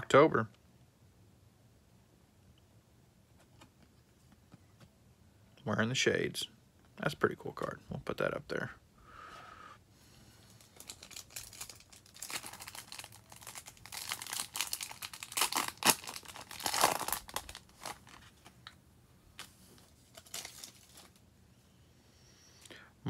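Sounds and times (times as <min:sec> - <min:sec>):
foil wrapper tearing and crinkling: 0:10.6 - 0:18.5, 0:20.0 - 0:21.2.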